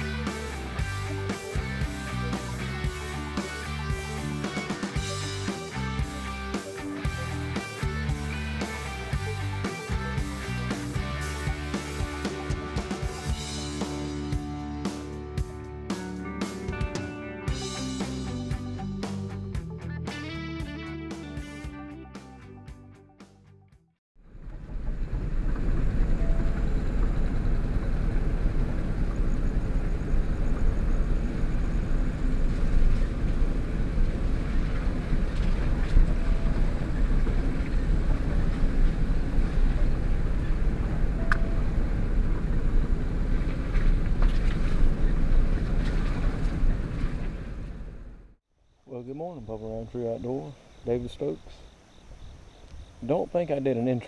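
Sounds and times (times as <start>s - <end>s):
truck engine and tyres rumbling: 24.2s - 48.4s.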